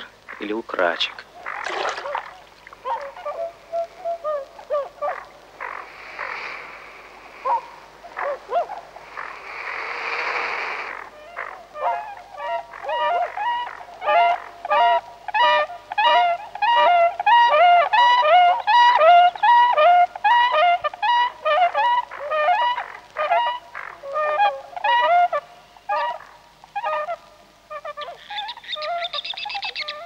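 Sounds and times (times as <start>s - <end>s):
swans honking: 0.0s - 6.3s, 10.8s - 30.0s
rushing noise: 8.8s - 11.2s
swans two-note whooping calls: 11.2s - 30.0s.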